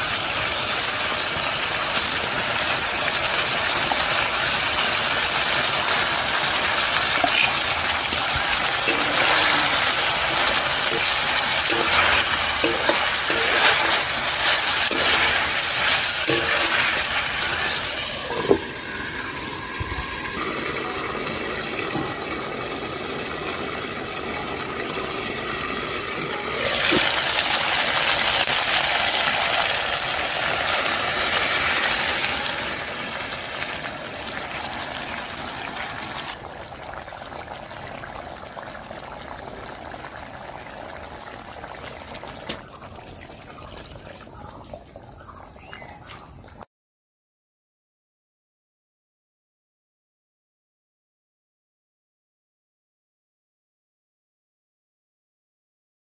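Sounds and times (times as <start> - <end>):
meat sizzling in a pan: 0.0 - 42.9
water poured into pan: 1.2 - 43.9
steel lid clinking on pan: 8.8 - 18.7.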